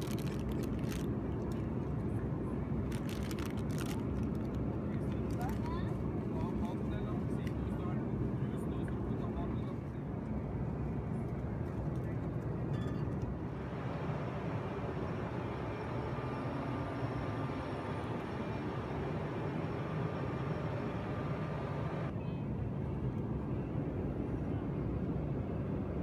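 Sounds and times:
airliner cabin rumble: 0.0 - 22.2
faint steady whine: 0.0 - 26.0.

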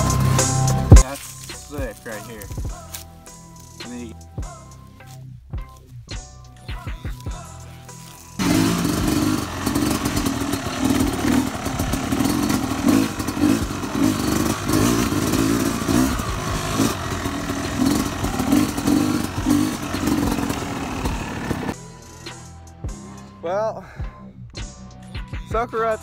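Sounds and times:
dirt bike engine revving: 0.0 - 1.1, 8.4 - 21.8.

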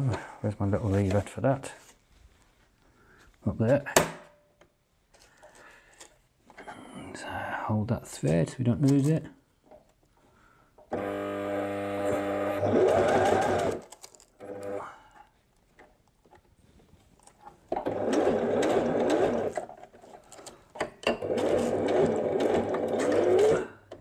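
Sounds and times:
sewing machine stitching: 10.9 - 14.8, 17.7 - 20.2, 21.0 - 24.0.

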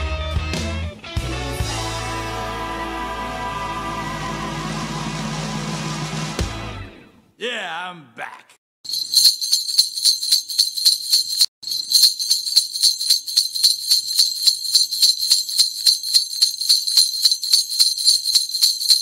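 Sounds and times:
jingle bells shaking: 8.8 - 19.0.

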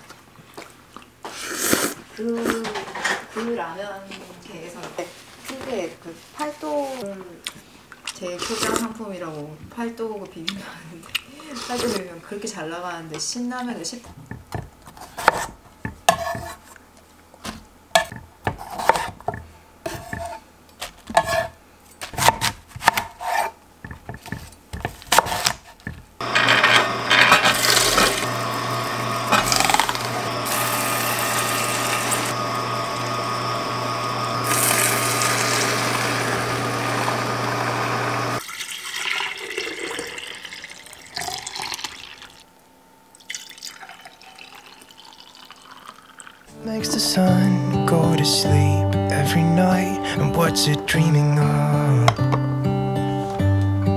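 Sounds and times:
knife chopping on wooden board: 14.3 - 16.6, 17.4 - 28.1
juicer humming: 26.2 - 42.5, 43.2 - 53.9
juice pouring into glass jar: 34.4 - 36.2, 38.4 - 42.4, 43.2 - 46.5.

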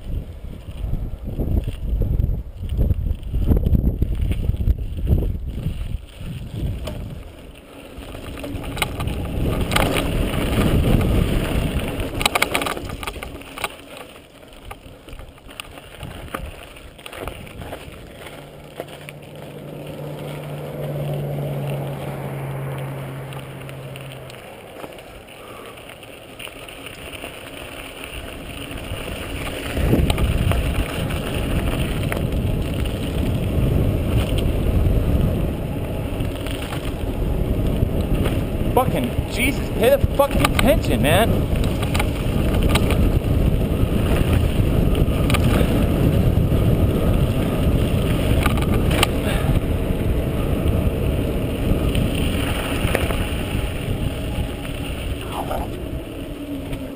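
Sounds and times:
wind rushing over microphone: 0.0 - 13.8, 14.6 - 24.8, 28.0 - 56.9
tyres rolling on loose ground: 0.0 - 56.9
bike knocks and rattles: 2.6 - 19.6, 36.1 - 49.6.

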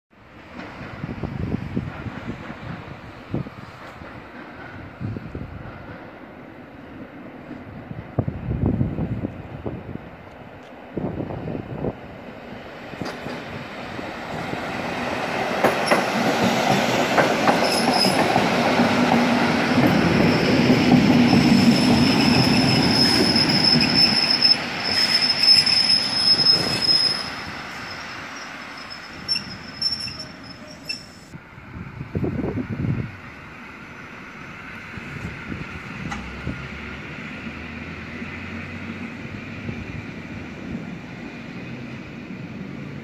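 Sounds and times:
train running noise: 0.2 - 43.0
train clicks: 1.7 - 6.2, 13.0 - 13.6, 15.1 - 21.6, 36.0 - 36.5
high brake squeal: 17.6 - 18.3, 21.2 - 31.3.

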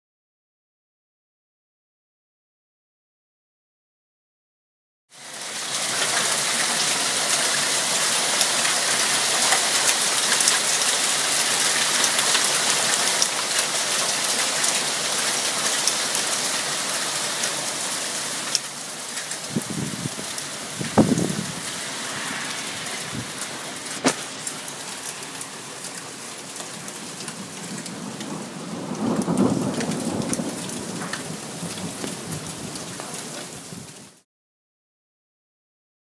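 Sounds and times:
rain and hail on concrete: 5.2 - 34.2
hailstones ticking: 8.3 - 17.8, 24.0 - 33.5
low rumble: 19.5 - 25.8.

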